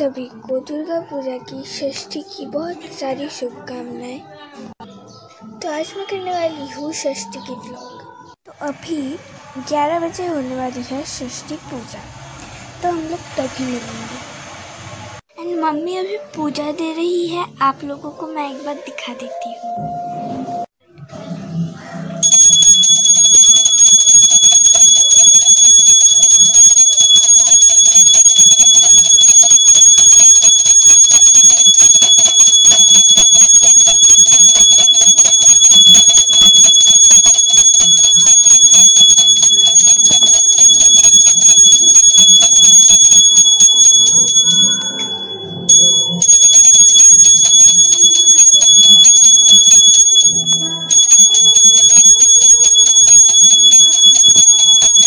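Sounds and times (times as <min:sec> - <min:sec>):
brass hand bell ringing rapidly: 0:22.2 - 0:55.0.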